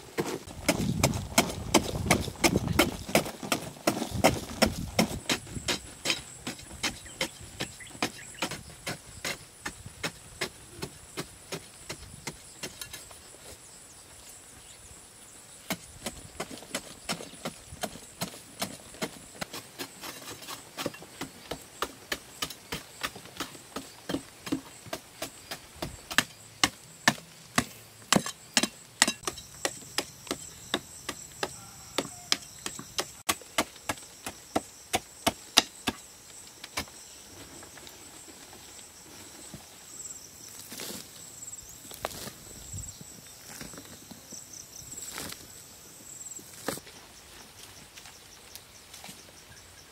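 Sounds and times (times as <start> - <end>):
digging tool striking hard earth: 0.1 - 13.0, 15.7 - 36.1.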